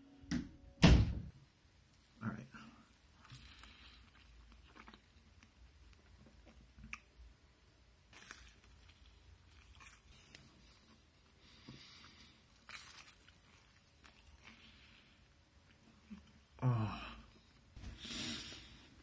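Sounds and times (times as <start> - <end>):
person chewing pizza: 2.8 - 7.4, 8.0 - 17.8.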